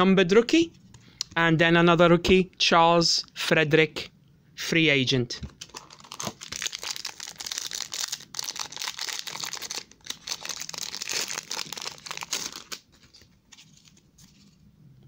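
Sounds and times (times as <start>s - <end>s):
foil wrapper crinkling and tearing: 5.6s - 14.0s.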